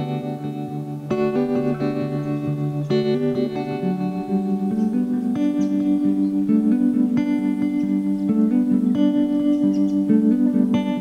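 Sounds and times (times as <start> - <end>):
plucked guitar music: 0.0 - 11.0.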